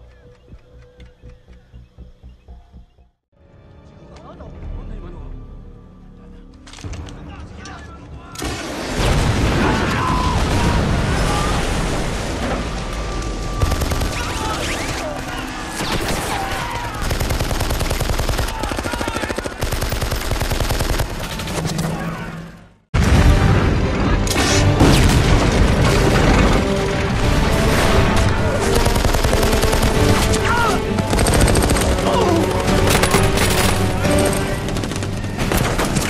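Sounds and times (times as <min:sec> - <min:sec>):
dramatic film score: 0:00.0 - 0:36.0
loud explosion: 0:08.5 - 0:12.8, 0:23.0 - 0:24.2, 0:24.8 - 0:26.7
machine-gun and rifle fire: 0:13.6 - 0:21.6, 0:24.8 - 0:36.0.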